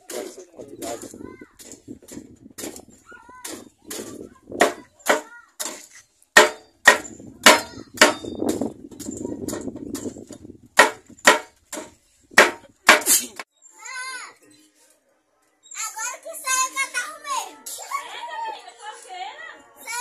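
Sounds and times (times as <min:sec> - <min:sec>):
knife chopping on wooden board: 0:10.8 - 0:13.2.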